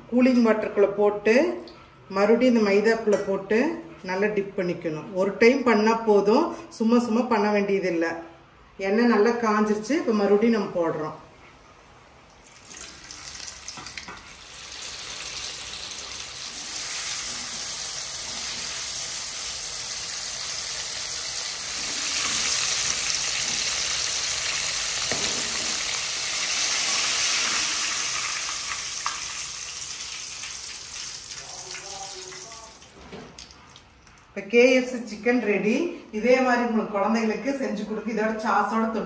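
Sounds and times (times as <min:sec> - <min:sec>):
chicken sizzling in oil: 0:12.5 - 0:32.8.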